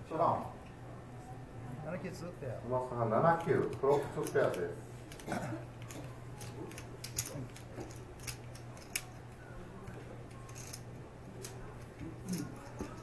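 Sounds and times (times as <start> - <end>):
steady low hum: 0.0 - 13.0
poker chips and cards clicking: 5.8 - 9.4, 10.2 - 13.0.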